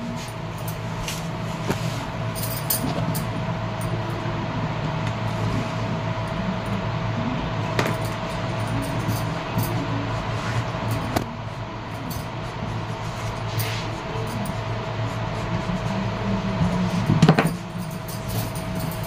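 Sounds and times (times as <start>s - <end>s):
steady low hum: 0.0s - 19.0s
bangles clinking: 2.4s - 3.9s, 17.8s - 19.0s.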